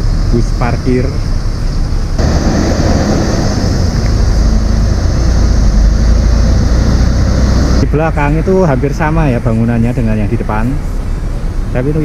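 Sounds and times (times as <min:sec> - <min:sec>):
bus engine hum: 0:00.0 - 0:12.0
high hiss: 0:00.6 - 0:09.8.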